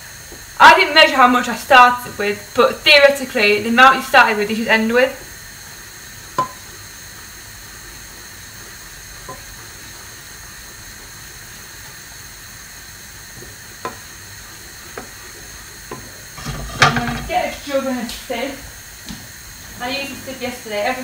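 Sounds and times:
pot of stock boiling: 0.0 - 21.0
utensil knocking on pan: 6.4 - 6.6, 13.8 - 14.1, 15.9 - 17.6.

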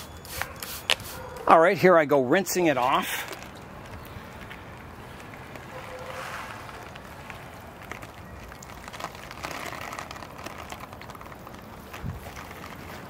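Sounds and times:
water spattering onto plants: 5.0 - 13.0.

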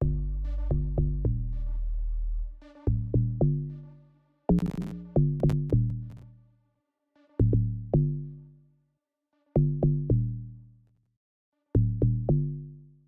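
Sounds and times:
log drum bass notes: 0.0 - 1.8, 4.5 - 6.2.

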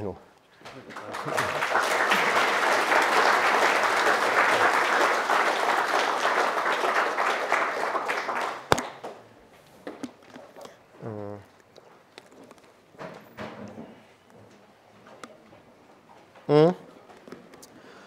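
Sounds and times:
audience applauding: 0.7 - 9.2.

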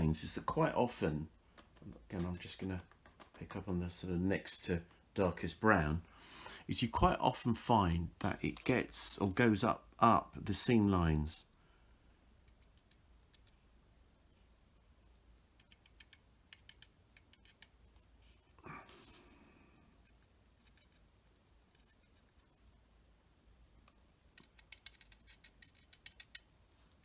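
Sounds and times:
faint small clicks and ticks: 11.8 - 13.8, 15.0 - 18.1, 23.7 - 27.0.

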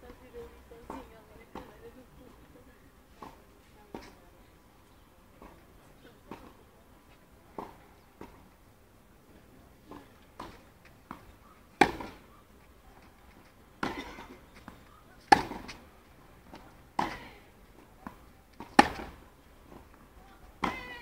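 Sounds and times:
rackets hitting tennis ball: 9.9 - 12.3, 13.8 - 15.8, 16.5 - 17.3, 18.0 - 19.8, 20.6 - 21.0.

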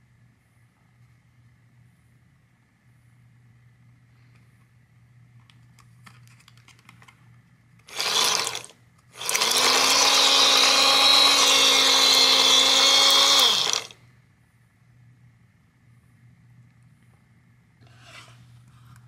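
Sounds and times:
toy washing machine motor whine: 7.9 - 14.0.

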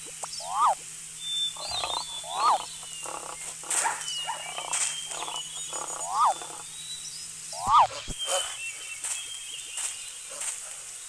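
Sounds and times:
rising and falling animal call: 0.4 - 0.8, 1.6 - 6.6, 7.5 - 8.6.

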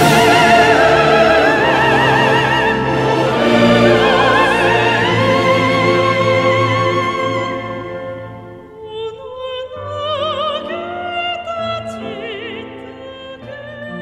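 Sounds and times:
held string chords: 0.0 - 8.7
soprano singing with vibrato: 0.0 - 14.0.

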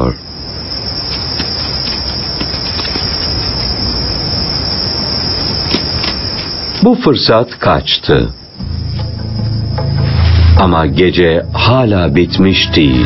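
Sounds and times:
crickets trilling: 0.0 - 13.0
low rumble: 8.6 - 12.6.

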